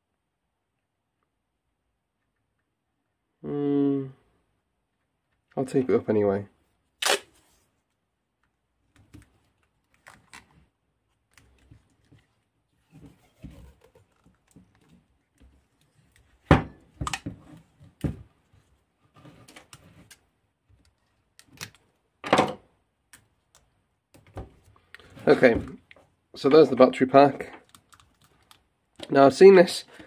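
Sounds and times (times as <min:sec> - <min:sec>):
tape rustling: 0:08.9 - 0:16.4, 0:27.4 - 0:29.2.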